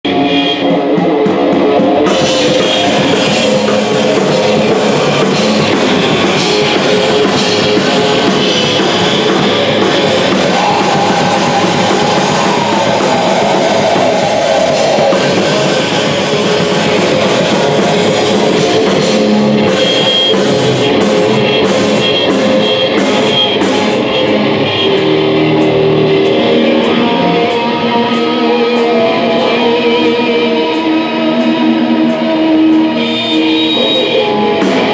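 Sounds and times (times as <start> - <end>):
punk rock band playing: 0.1 - 34.9.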